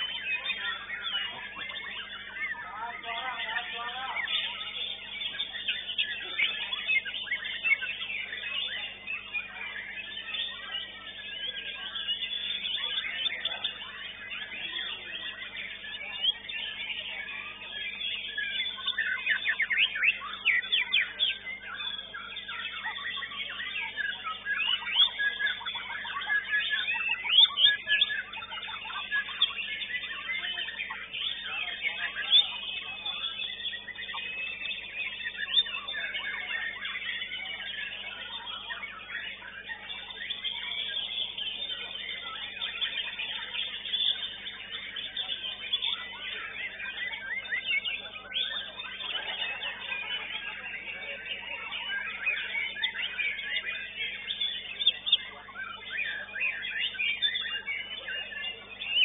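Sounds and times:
songbirds singing: 0.0s - 59.0s.

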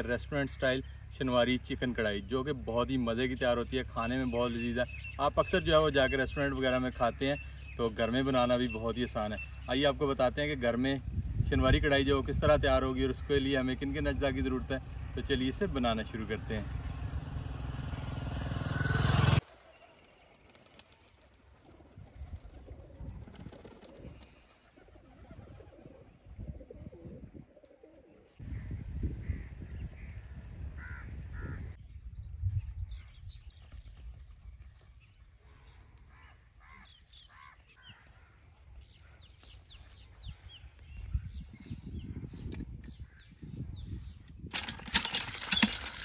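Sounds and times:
bird chirps and calls: 3.4s - 10.3s.

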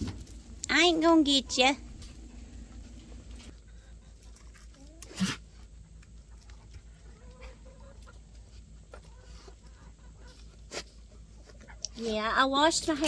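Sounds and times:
animal snort: 4.9s - 5.7s.

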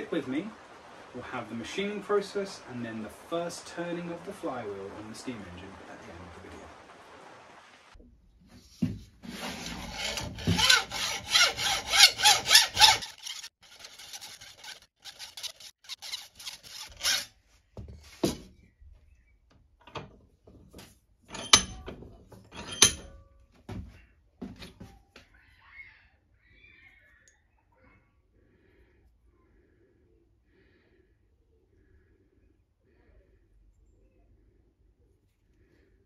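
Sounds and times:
hacksaw rasping strokes: 9.2s - 17.3s.

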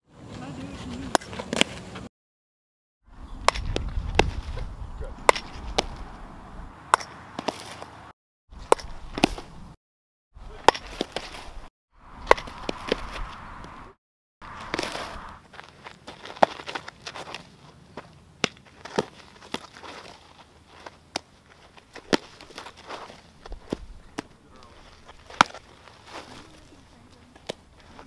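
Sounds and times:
balls hitting the dirt: 0.3s - 2.1s, 3.4s - 9.8s, 10.4s - 28.0s
softballs smacking into a mitt: 21.9s - 26.5s, 27.3s - 28.0s.

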